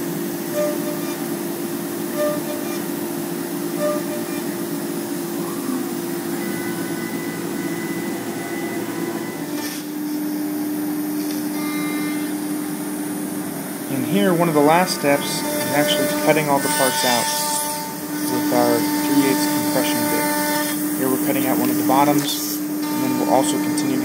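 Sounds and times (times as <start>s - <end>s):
router spindle whine: 0.0s - 24.0s
bit cutting plywood: 0.5s - 1.3s, 2.1s - 3.0s, 3.8s - 4.7s, 14.4s - 24.0s.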